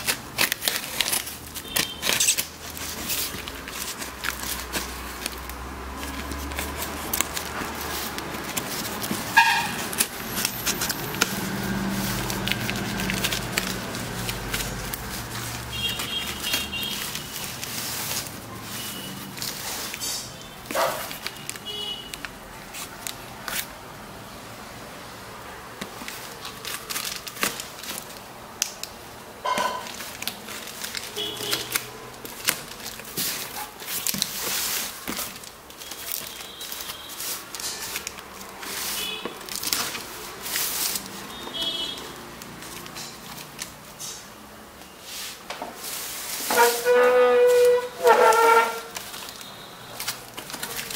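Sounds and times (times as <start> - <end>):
knife slitting packing tape: 0.0 - 23.8, 29.6 - 44.3.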